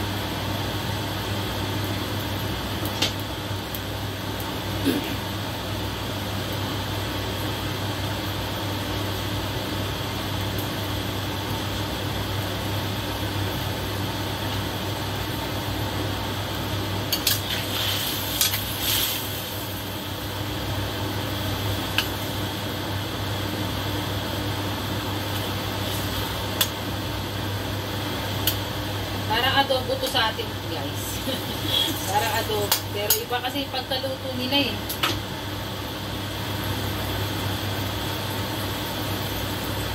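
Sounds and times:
sauce simmering in wok: 0.0s - 29.2s
fan-like hum and hiss: 0.0s - 39.9s.

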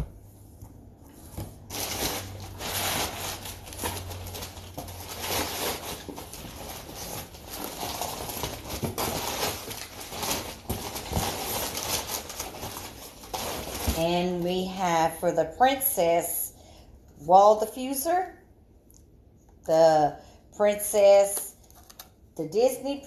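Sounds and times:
packaging rustling and crinkling: 1.2s - 14.4s.

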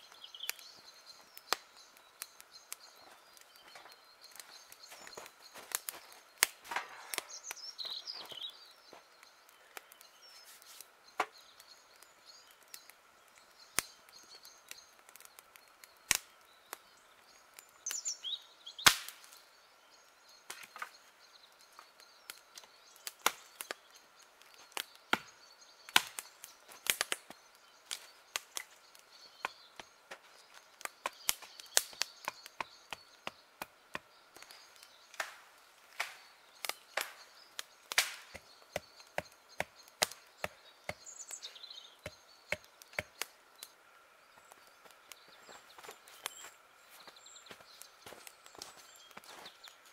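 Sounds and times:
axe chopping wood: 37.9s - 41.1s.

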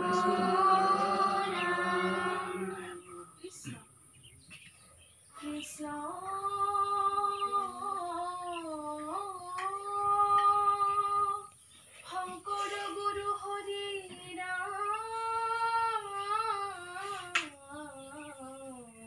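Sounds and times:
children singing: 0.0s - 3.8s.

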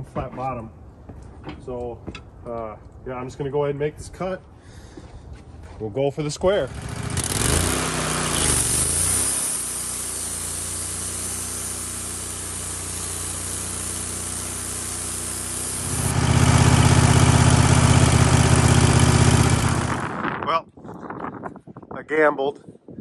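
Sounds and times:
bandsaw mill engine running: 6.7s - 20.3s.

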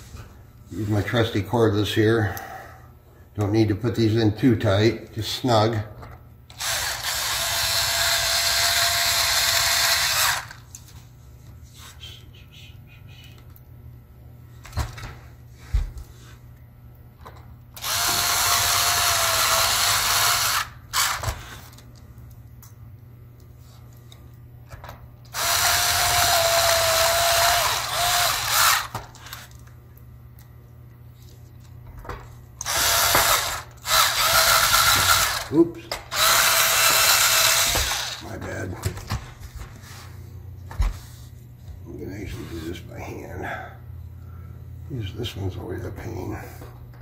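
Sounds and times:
electric screwdriver motor whine: 6.5s - 10.6s, 17.8s - 21.4s, 25.3s - 29.3s, 32.6s - 35.5s, 36.1s - 38.2s.

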